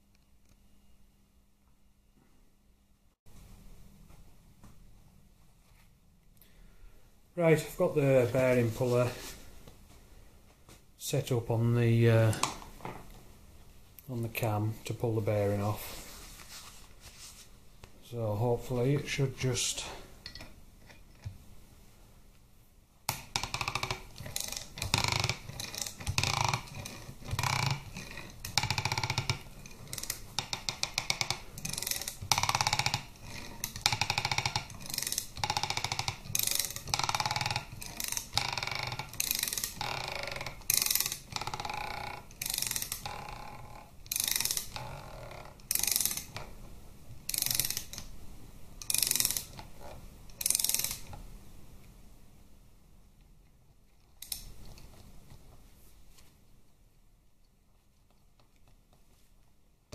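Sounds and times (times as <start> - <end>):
ratchet wrench clicking: 23.1 - 43.4, 44.0 - 44.9, 45.6 - 46.4, 47.3 - 48.1, 48.8 - 49.6, 50.3 - 51.1.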